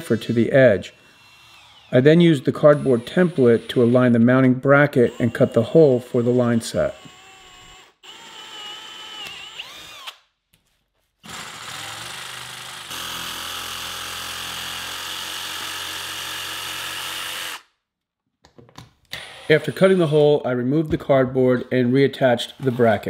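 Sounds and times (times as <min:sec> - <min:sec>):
cordless drill boring into wood: 0:00.0 - 0:04.2, 0:05.0 - 0:10.2, 0:11.2 - 0:17.7, 0:19.1 - 0:20.2
jigsaw cutting plywood: 0:11.2 - 0:17.6.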